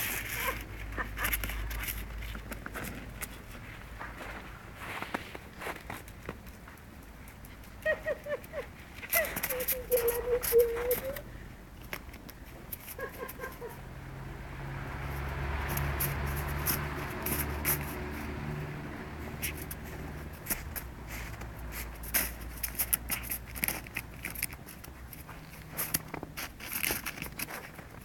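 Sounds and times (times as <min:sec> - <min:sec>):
crunching and scraping in snow: 0:00.0 - 0:06.3, 0:19.3 - 0:28.0.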